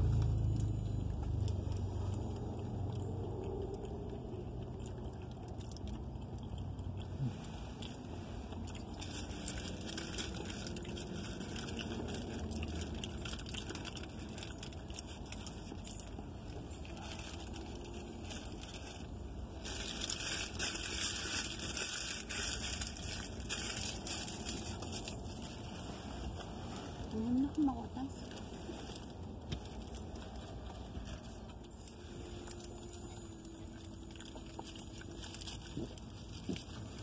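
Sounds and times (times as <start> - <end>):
paper bag rustling and crinkling: 8.0 - 37.0.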